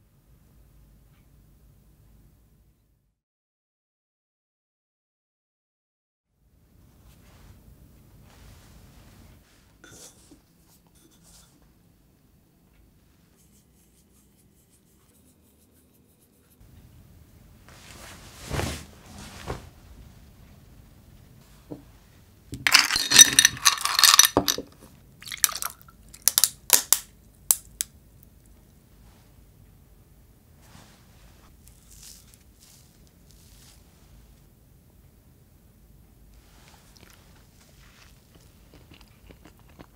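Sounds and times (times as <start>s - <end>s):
soft rustle: 6.8s - 11.7s, 13.0s - 16.8s, 17.5s - 22.3s, 30.6s - 34.5s, 36.3s - 38.7s
ice cubes crackling in a glass: 22.6s - 27.0s.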